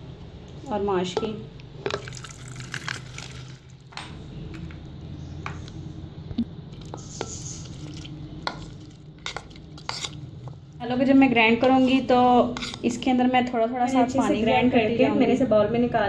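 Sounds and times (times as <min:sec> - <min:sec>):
steady low hum: 0:00.0 - 0:16.0
spoon scraping ceramic plate: 0:08.6 - 0:10.2, 0:11.6 - 0:13.0.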